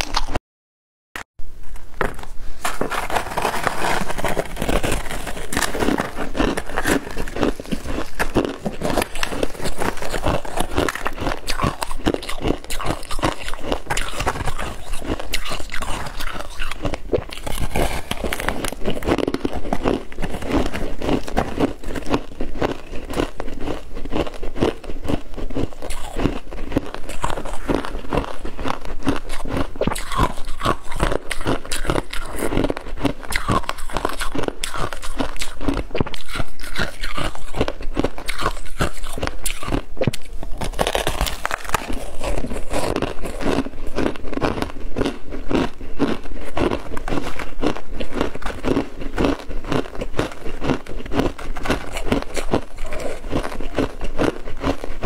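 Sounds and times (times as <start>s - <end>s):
biting and chewing ice: 0.0s - 0.4s, 1.9s - 55.0s.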